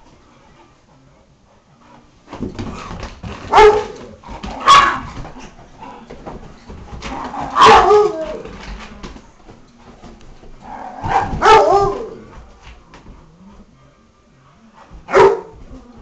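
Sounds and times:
dog barking sharply: 0:04.6 - 0:05.0.

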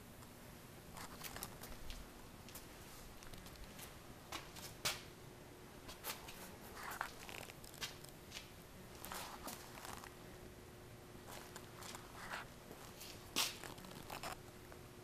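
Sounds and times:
low room hum: 0:00.0 - 0:15.0
footsteps on concrete: 0:11.3 - 0:14.3.

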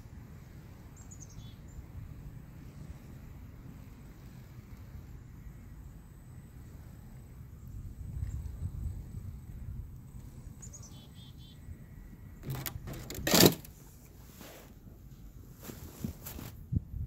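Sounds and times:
faint high chirps: 0:10.1 - 0:11.8
rustling crunch near microphone: 0:12.4 - 0:17.0.

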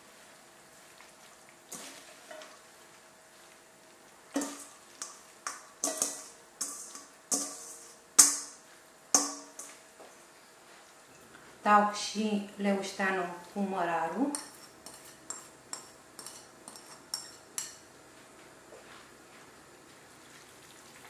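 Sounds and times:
metal bowl clinking on pot: 0:04.3 - 0:09.8, 0:14.3 - 0:17.8.

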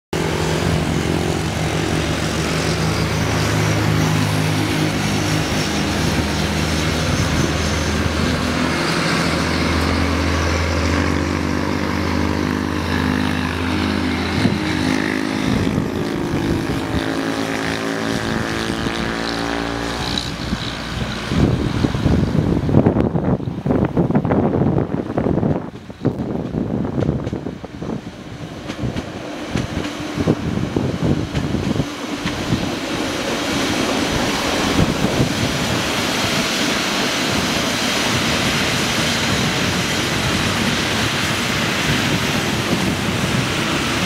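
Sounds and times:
diesel locomotive engine drone: 0:00.1 - 0:44.0
wind buffeting microphone: 0:00.2 - 0:44.0.

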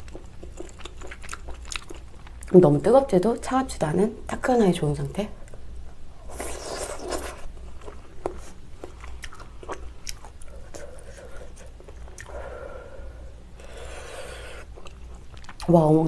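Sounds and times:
chewing and slurping: 0:00.0 - 0:02.5, 0:13.6 - 0:15.7.

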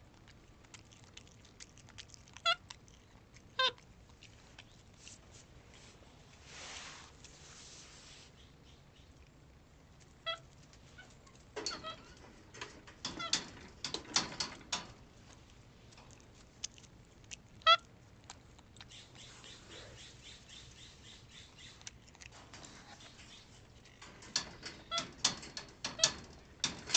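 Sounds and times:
clicking and crackling: 0:10.7 - 0:17.5, 0:21.8 - 0:26.9
monkey squeaky chirps: 0:18.9 - 0:21.8.

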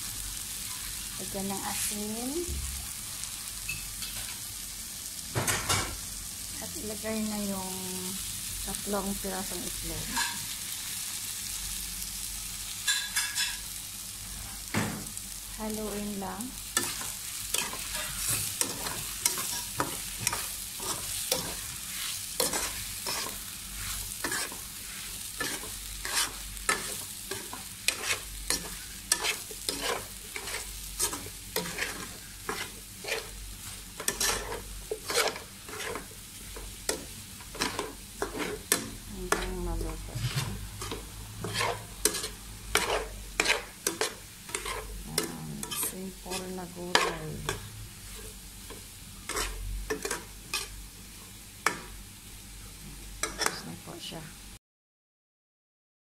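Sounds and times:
food sizzling in oil: 0:00.0 - 0:54.6
spatula scraping a pan: 0:10.0 - 0:10.6, 0:16.6 - 0:50.8.

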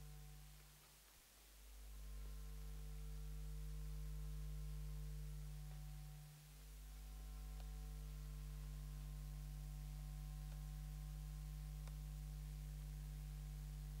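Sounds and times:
low electrical hum: 0:00.0 - 0:14.0
faint ticks: 0:02.2 - 0:13.2.

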